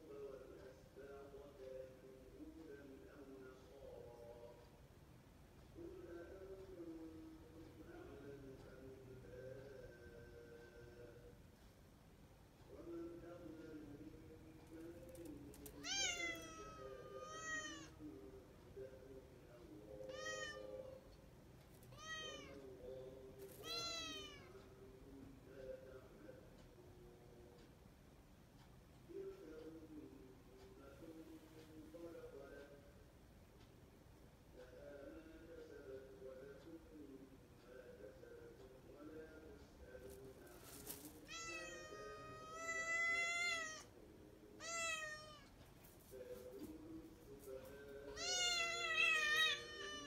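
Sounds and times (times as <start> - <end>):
cat meowing: 15.8 - 18.0, 20.0 - 20.7, 21.9 - 22.6, 23.6 - 24.5, 41.2 - 43.9, 44.6 - 45.5, 48.2 - 50.0.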